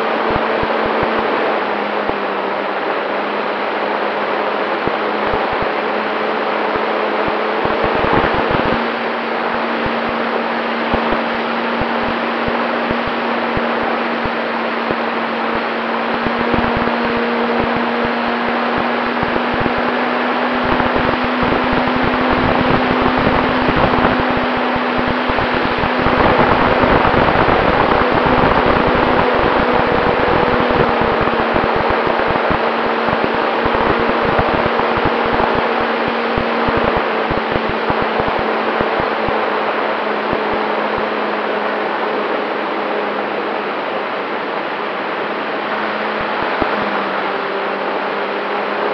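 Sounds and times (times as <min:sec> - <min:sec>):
model plane motor drone: 0:00.0 - 0:44.0
wind buffeting microphone: 0:04.8 - 0:41.2
wind rushing: 0:10.9 - 0:39.4.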